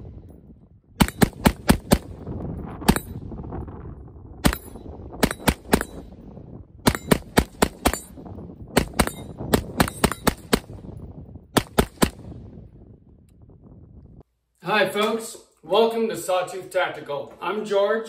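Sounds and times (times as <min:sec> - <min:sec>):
rifle shots: 0:01.0 - 0:02.2, 0:04.4 - 0:06.2, 0:06.8 - 0:10.8, 0:11.5 - 0:12.4
bullets ringing on steel target: 0:09.0 - 0:10.3.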